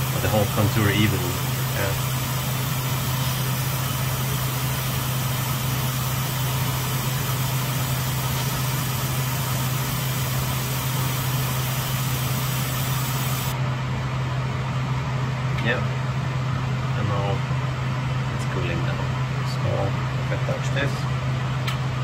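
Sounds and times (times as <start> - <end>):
extractor fan humming: 0.0 - 22.0
high hiss of laser: 3.2 - 13.6.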